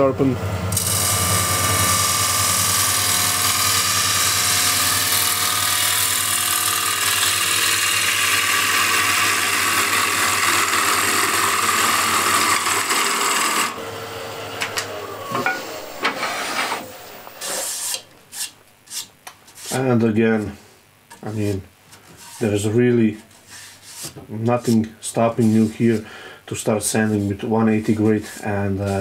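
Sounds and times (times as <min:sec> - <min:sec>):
lathe humming: 0:00.0 - 0:18.1
gouge cutting wood hissing: 0:00.7 - 0:13.8.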